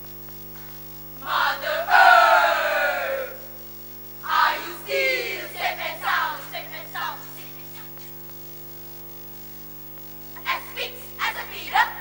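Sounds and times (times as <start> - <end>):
electrical hum: 0.0 - 12.0
girls reciting in unison: 1.2 - 3.4, 4.2 - 7.6, 10.4 - 12.0.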